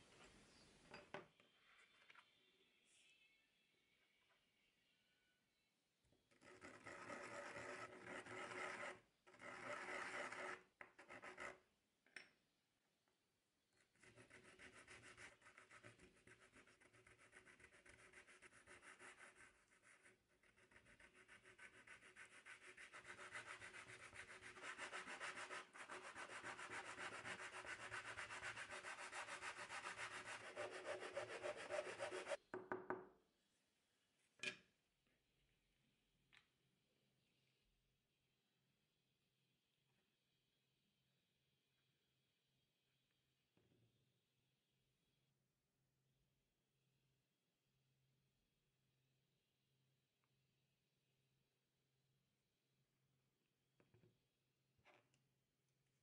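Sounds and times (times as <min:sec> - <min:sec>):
wood rubbed on sandpaper: 0:14.1 - 0:32.4.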